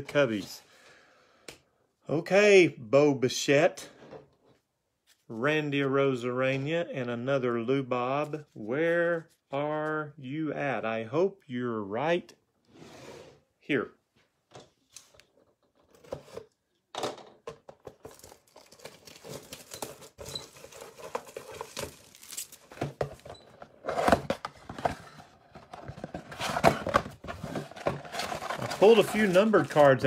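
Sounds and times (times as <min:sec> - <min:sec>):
plastic wrap crinkling and tearing: 0:18.0 - 0:23.0, 0:28.1 - 0:30.0
cardboard rustling and knocking: 0:19.4 - 0:30.0.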